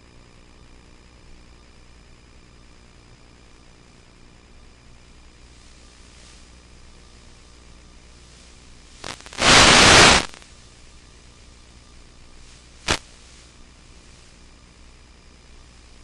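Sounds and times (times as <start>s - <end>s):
static hiss: 5.4s - 16.0s
static crackle: 8.0s - 14.4s.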